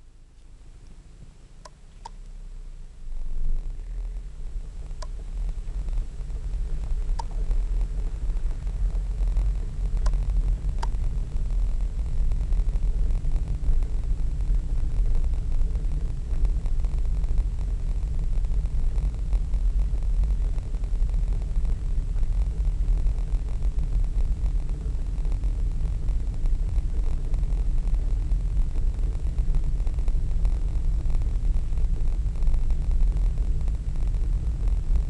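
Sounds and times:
car interior road and engine rumble: 0:00.0 - 0:28.6
faint ticks: 0:00.4 - 0:02.4, 0:03.5 - 0:35.0.

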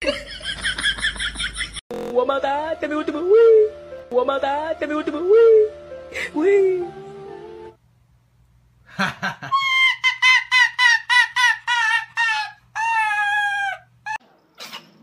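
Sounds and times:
fox crying: 0:09.5 - 0:14.2.

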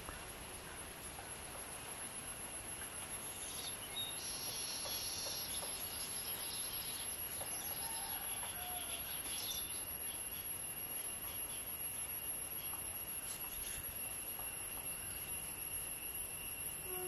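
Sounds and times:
steady high-pitched whine: 0:00.0 - 0:17.0
small birds chirping: 0:03.2 - 0:15.5.

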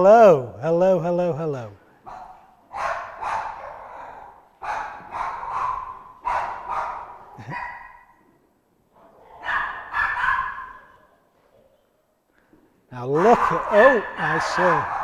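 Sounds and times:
dogs barking: 0:02.0 - 0:08.3, 0:09.0 - 0:11.1, 0:13.1 - 0:15.0.

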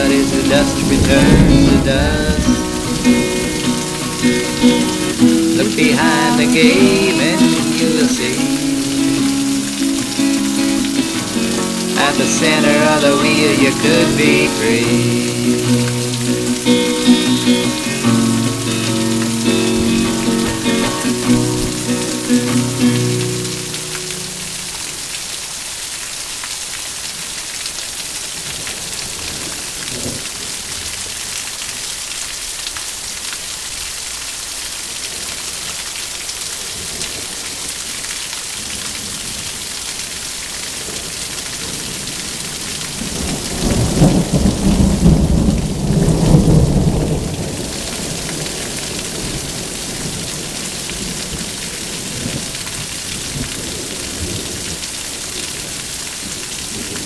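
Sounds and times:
thunder rumbling: 0:00.0 - 0:23.8, 0:43.0 - 0:50.2
steady rain hissing: 0:00.0 - 0:57.0.

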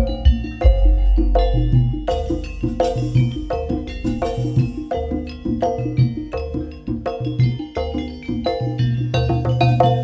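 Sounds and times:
deep bass: 0:00.0 - 0:07.6
drum beats: 0:00.0 - 0:10.0
gamelan music: 0:00.0 - 0:10.0.

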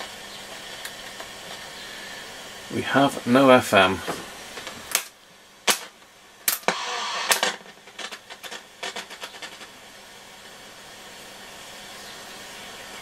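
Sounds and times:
radio hiss: 0:00.0 - 0:13.0
faint radio crackles: 0:05.7 - 0:09.8.

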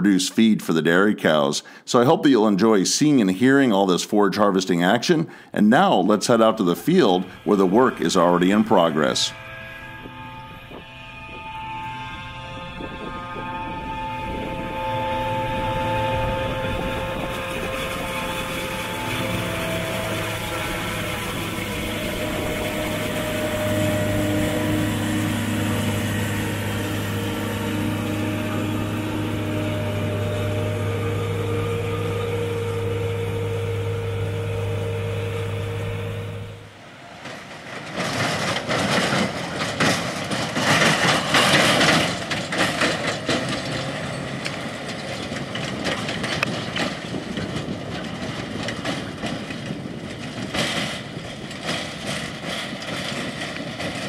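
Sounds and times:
harvester engine humming: 0:05.3 - 0:54.0
rough uneven rushing noise: 0:06.2 - 0:36.6.

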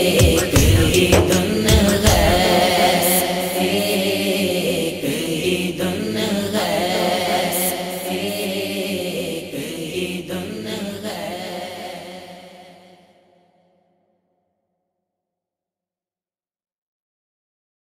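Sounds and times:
man chanting: 0:00.0 - 0:03.2
sustained vocal backing: 0:00.0 - 0:13.4.

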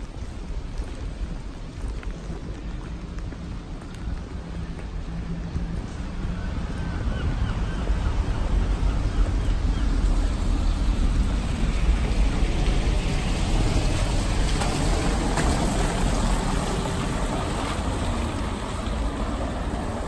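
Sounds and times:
wet street rumble with hiss: 0:00.0 - 0:20.0
van driving past on wet cobbles: 0:09.5 - 0:20.0.

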